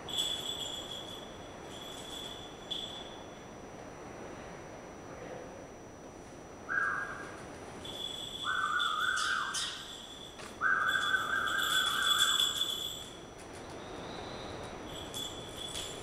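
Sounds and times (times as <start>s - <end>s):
flat whistle: 6.6s - 12.8s.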